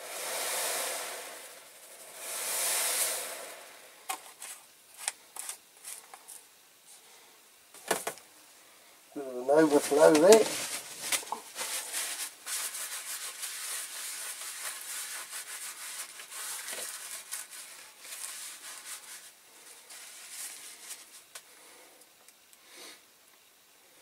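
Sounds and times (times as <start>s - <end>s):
chemical bath fizzing and crackling: 9.7s - 21.4s.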